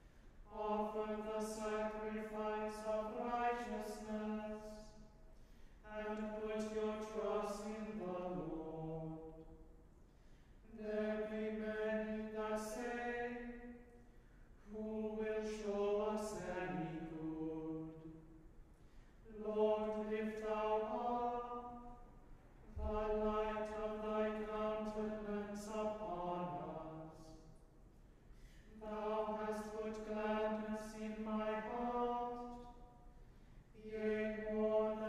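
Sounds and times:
men's choir chanting in unison: 0:00.5 - 0:04.8, 0:14.8 - 0:18.0, 0:22.7 - 0:27.3, 0:28.8 - 0:32.7, 0:33.8 - 0:35.0.

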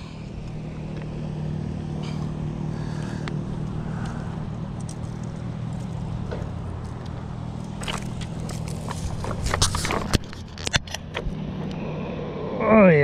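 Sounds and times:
low mechanical hum: 0:00.0 - 0:13.0
clicks and rustles: 0:03.2 - 0:11.4.

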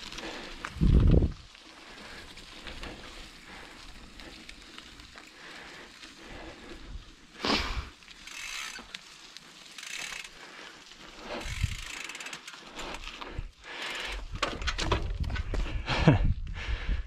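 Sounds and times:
bicycle freehub ticking: 0:00.0 - 0:14.4.

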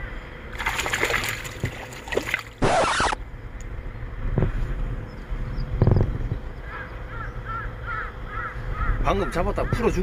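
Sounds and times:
water splash: 0:00.5 - 0:03.2.

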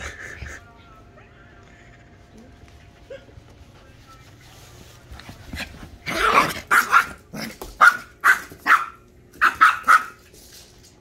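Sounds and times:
small dog barking: 0:06.1 - 0:10.2.

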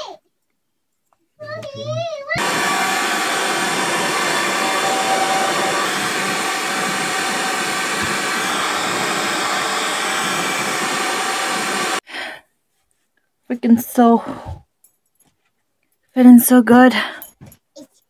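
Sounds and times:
hair dryer running: 0:02.4 - 0:12.0.

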